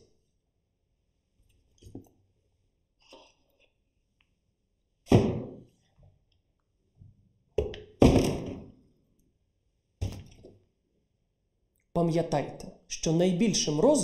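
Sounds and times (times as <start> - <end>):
plastic items thunking into cardboard box: 7.6 - 8.8.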